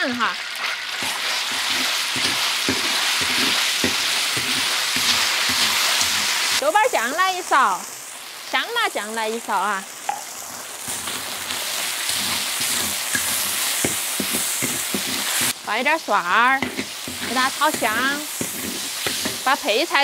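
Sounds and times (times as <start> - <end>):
pork sizzling in hot oil: 0.0 - 20.0
spatula scraping and tapping wok: 0.1 - 6.6, 10.9 - 15.6, 16.6 - 20.0.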